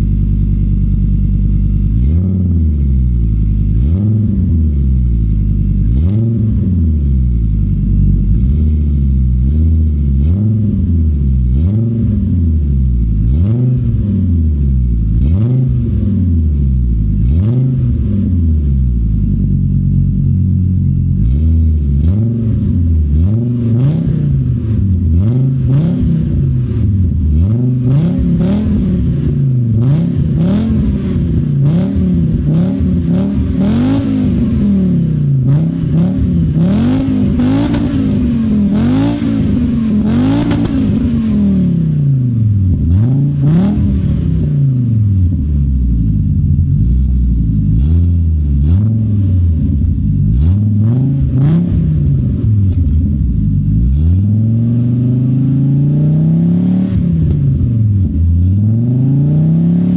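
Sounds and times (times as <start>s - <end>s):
car engine revving: 0.0s - 59.9s
exhaust pops: 39.2s - 41.2s.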